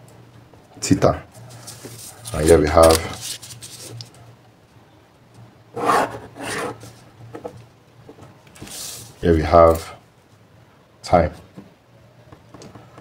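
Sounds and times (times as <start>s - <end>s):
ruler sliding across paper: 5.8s - 7.0s.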